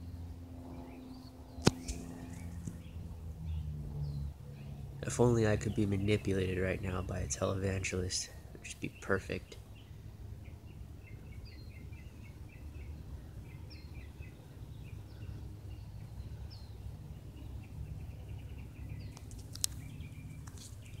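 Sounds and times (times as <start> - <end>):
small birds chirping: 0.0 - 21.0
steady low rumble: 0.0 - 21.0
sharp click: 1.6 - 2.0.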